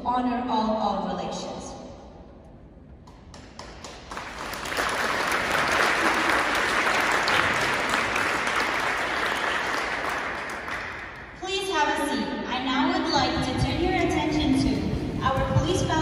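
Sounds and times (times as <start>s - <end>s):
audience applauding: 3.3s - 11.3s.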